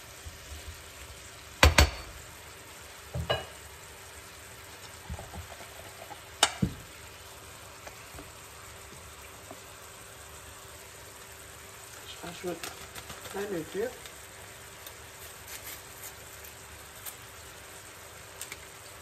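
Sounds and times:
apple slices sizzling in a pan: 0.0s - 19.0s
spatula stirring in a pan: 4.6s - 7.0s, 11.6s - 17.2s.

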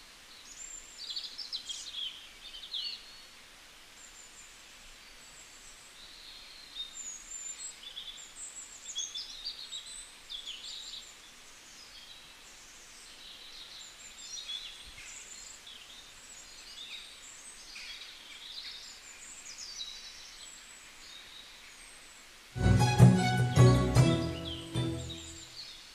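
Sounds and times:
small birds chirping: 0.0s - 22.4s, 23.5s - 25.9s
faint steady hiss: 0.0s - 25.9s.

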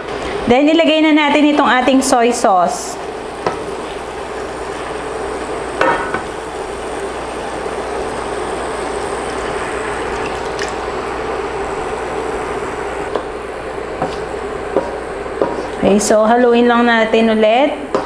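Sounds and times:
pork sizzling in wok: 2.2s - 15.9s.

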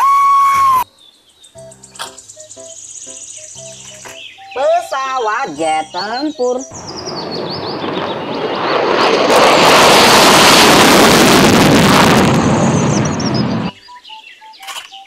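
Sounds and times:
birds chirping: 0.8s - 9.0s, 12.4s - 15.0s
fighter jet taking off: 6.7s - 13.7s.

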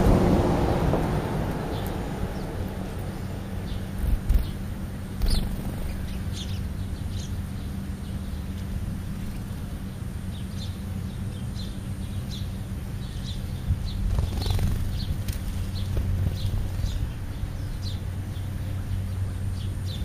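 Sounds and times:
low rumble: 0.0s - 7.7s
steady low hum: 0.0s - 20.0s
sparrows chirping: 1.2s - 20.0s.

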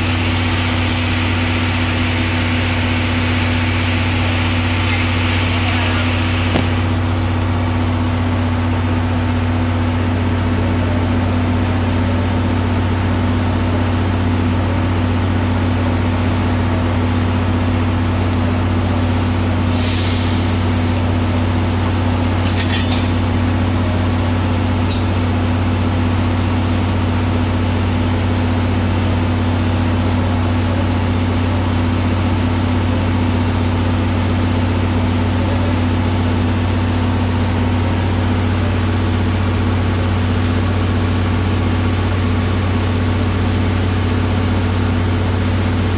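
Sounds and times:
diesel engine idling: 0.0s - 45.9s
metallic clanks: 22.4s - 23.3s.

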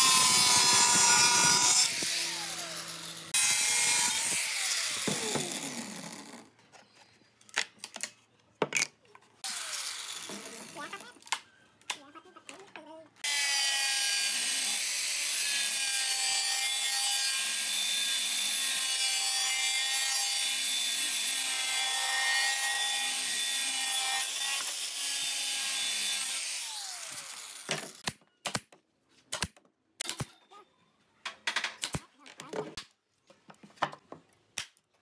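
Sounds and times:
angle grinder cutting wood: 0.0s - 6.5s, 9.4s - 11.1s, 13.2s - 28.0s.

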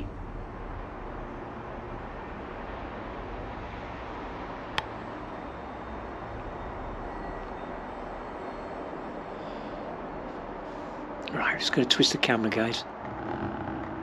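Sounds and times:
background rumble and hiss: 0.0s - 14.0s.

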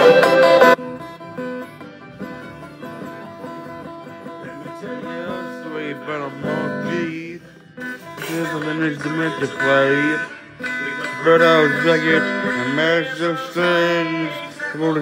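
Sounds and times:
loud full music: 0.0s - 1.0s
electric guitar picking notes: 0.0s - 15.0s.

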